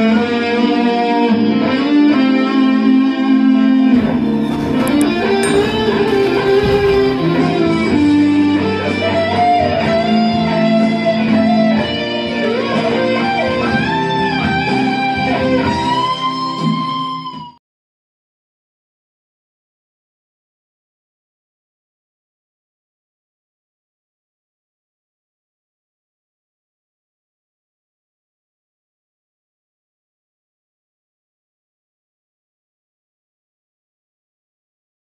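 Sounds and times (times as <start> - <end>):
electric guitar lead with bends: 0.0 - 17.6.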